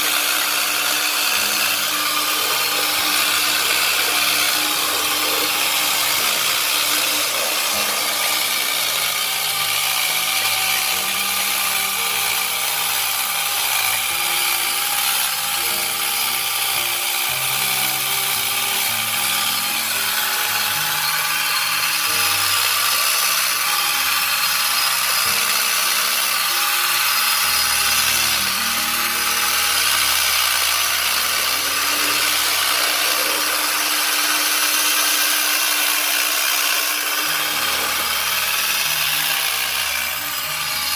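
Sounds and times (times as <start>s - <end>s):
power tool cutting wood: 0.0s - 40.9s.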